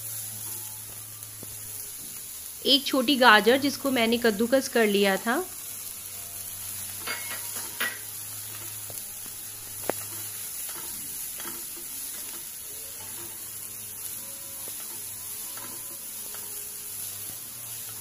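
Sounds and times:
vegetables sizzling in a pan: 0.0s - 18.0s
spatula scraping a pan: 6.7s - 9.0s, 9.6s - 18.0s.

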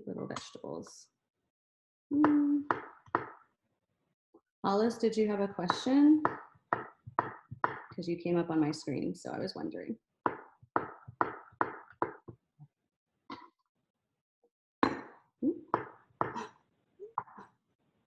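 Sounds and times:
knife chopping on wooden board: 10.3s - 12.2s.

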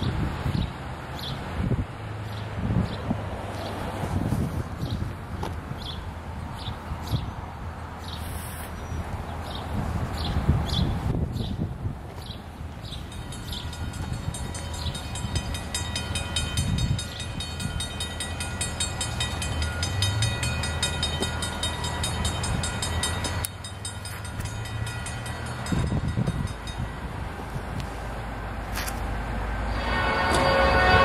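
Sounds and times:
low train rumble: 0.0s - 31.0s
rapid bell ringing: 13.0s - 27.6s
train horn: 29.7s - 31.0s.

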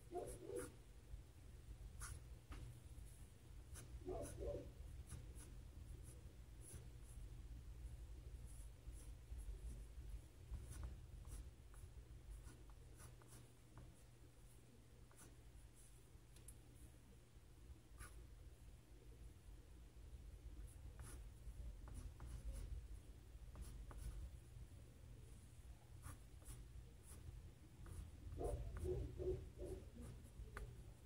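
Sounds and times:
low steady hum: 0.0s - 31.0s
pencil scratching on paper: 0.1s - 0.8s, 2.0s - 7.2s, 8.4s - 16.1s, 18.0s - 18.2s, 20.6s - 24.4s, 26.0s - 31.0s.

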